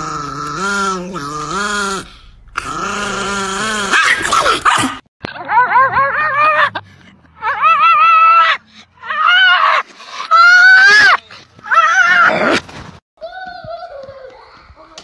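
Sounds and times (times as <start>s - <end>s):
dog yowling: 0.0s - 6.8s, 7.4s - 12.6s.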